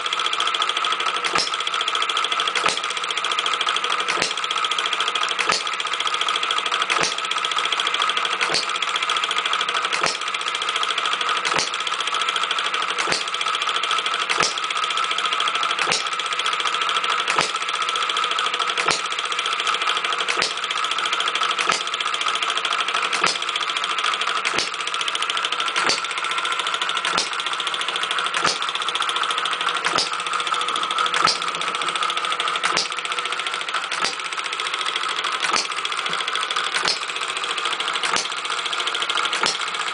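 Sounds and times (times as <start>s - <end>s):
model gas engine clattering: 0.0s - 39.9s
sharp engine click: 1.0s - 1.8s, 2.4s - 3.0s, 3.9s - 4.6s, 5.2s - 5.8s, 6.7s - 7.4s, 8.3s - 8.8s, 9.8s - 10.4s, 11.4s - 12.0s, 12.9s - 13.4s, 14.2s - 14.8s, 15.7s - 16.2s, 17.2s - 17.7s, 18.6s - 19.2s, 20.2s - 20.6s, 21.5s - 22.0s, 23.0s - 23.6s, 24.2s - 27.6s, 28.3s - 28.8s, 29.7s - 30.3s, 31.1s - 39.9s.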